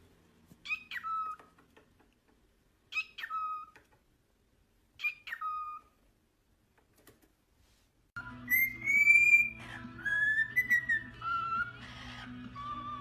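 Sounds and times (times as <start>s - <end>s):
cockatiel calling: 0.6s - 1.5s, 2.9s - 3.8s, 5.0s - 6.0s, 8.5s - 13.0s.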